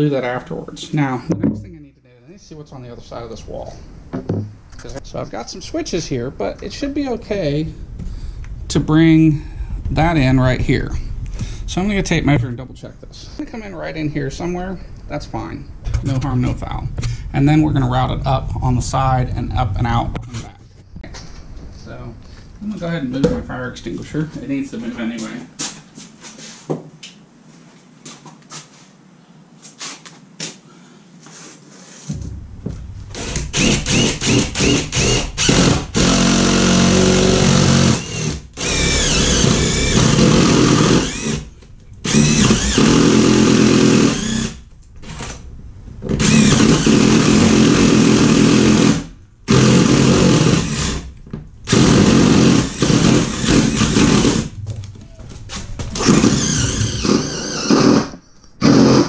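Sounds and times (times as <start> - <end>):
cordless drill boring into wood: 33.2 - 45.3, 46.2 - 51.1, 51.7 - 54.5, 56.0 - 59.0.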